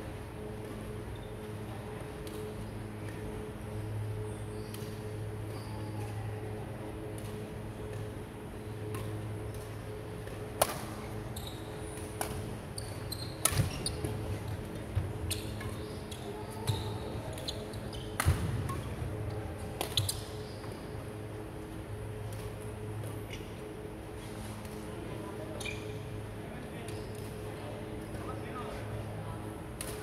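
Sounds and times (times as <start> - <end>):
racket hitting shuttlecock: 10.2 - 11.0, 12.0 - 12.5, 18.2 - 18.9, 19.8 - 20.2.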